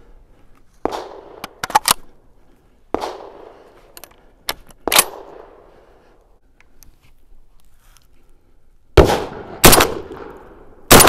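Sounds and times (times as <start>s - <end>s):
shotgun shots echoing: 0.8s - 1.6s, 2.9s - 3.6s, 4.8s - 5.6s, 9.0s - 11.0s
sharp gun clicks: 0.8s - 2.1s.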